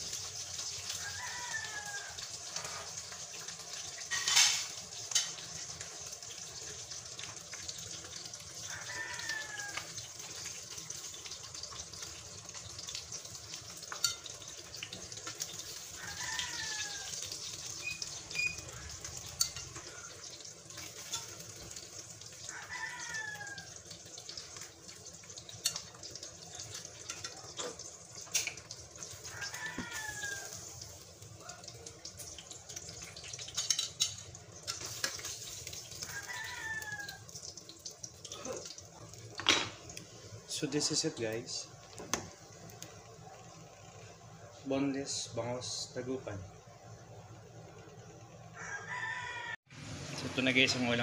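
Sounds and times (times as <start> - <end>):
oil sizzling in a pan: 0.0 - 51.0
rooster crowing: 0.9 - 2.9, 8.6 - 10.0, 15.7 - 17.3, 22.4 - 23.9, 29.1 - 30.7, 36.0 - 37.3, 48.5 - 49.7.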